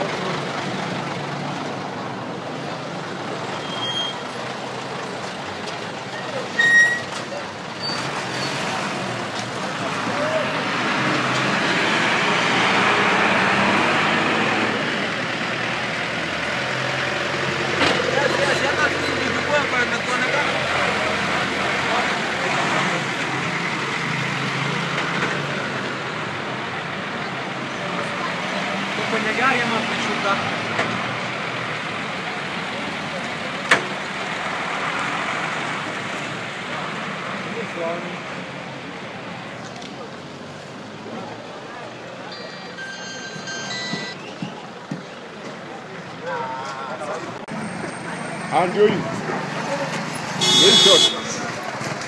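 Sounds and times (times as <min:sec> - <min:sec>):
street traffic: 0:00.0 - 0:52.0
truck engine: 0:00.0 - 0:52.0
high beep: 0:42.3 - 0:44.5.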